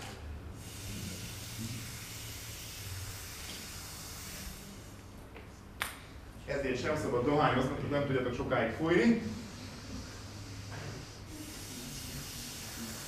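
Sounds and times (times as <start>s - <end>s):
breath blown through straw: 0.6s - 5.0s, 9.3s - 13.0s.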